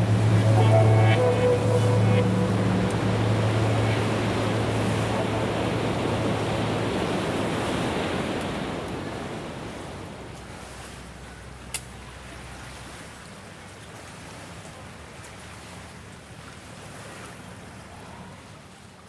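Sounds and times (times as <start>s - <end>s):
water wash: 0.0s - 13.0s
motorboat engine hum: 0.0s - 15.0s.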